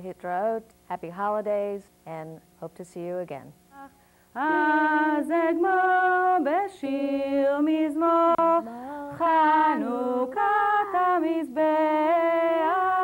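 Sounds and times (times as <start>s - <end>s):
woman singing unaccompanied: 3.7s - 13.0s.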